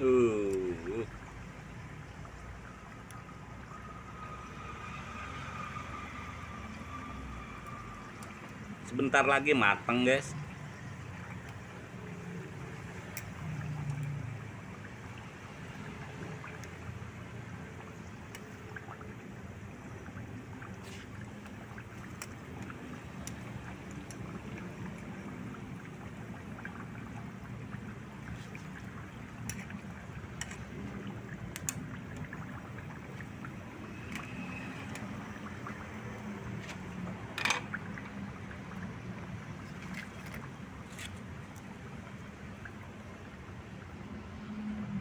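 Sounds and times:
pan bubbling over fire: 0.0 - 45.0
sharp clicks and pops: 13.0 - 14.2, 28.6 - 35.7.

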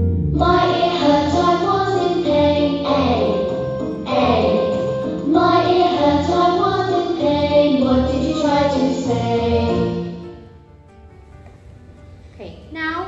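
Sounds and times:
children's song with beat: 0.3 - 10.3.

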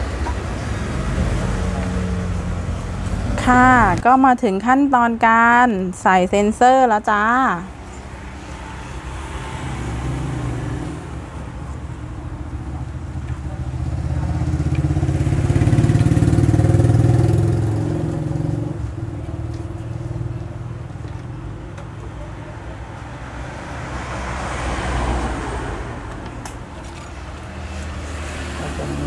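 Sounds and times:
vehicle engine passing by: 0.1 - 4.0, 7.9 - 20.9, 22.8 - 29.0.

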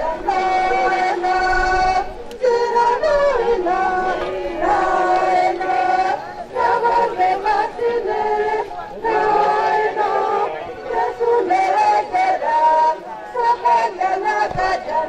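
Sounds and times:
several voices singing: 0.0 - 15.0.

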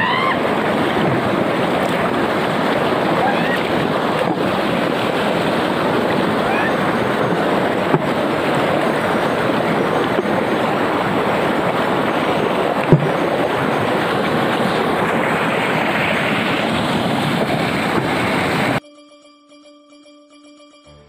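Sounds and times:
surf: 0.0 - 18.8
wind on microphone: 0.0 - 18.8.

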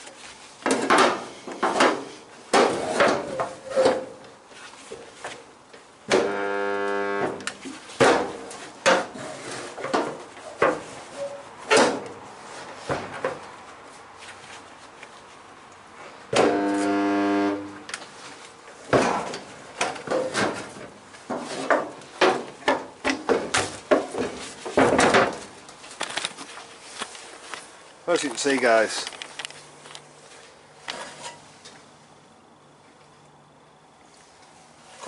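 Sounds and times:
spot welder buzzing: 6.1 - 7.5, 16.4 - 17.8.

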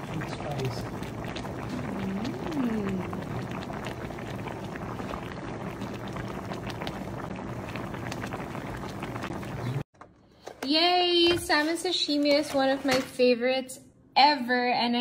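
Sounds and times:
broth boiling and bubbling: 0.0 - 10.1.

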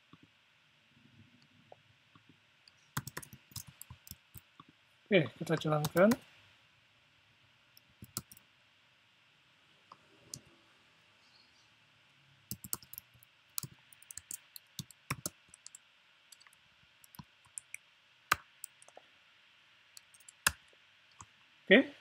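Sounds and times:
faint steady hiss: 0.0 - 22.0
keyboard keystrokes: 3.0 - 4.2, 8.0 - 8.4, 12.5 - 15.8.

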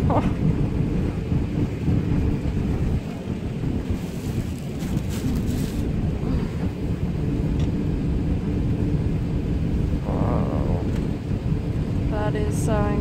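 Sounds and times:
airplane cabin engine rumble: 0.0 - 13.0.

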